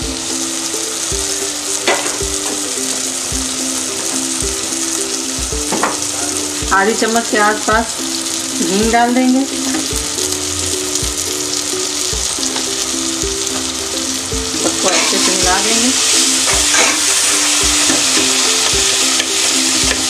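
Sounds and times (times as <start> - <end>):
background music with steady beat: 0.0 - 20.0
masala sizzling in oil: 0.0 - 20.0.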